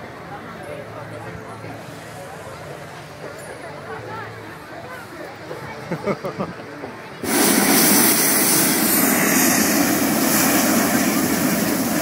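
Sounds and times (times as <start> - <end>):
propane burner rushing: 7.2 - 12.0.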